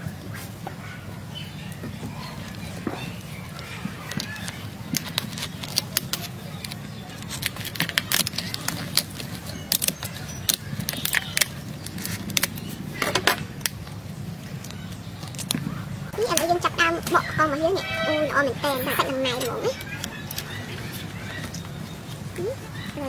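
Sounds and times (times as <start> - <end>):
scissors cracking lobster shell: 4.4 - 12.7.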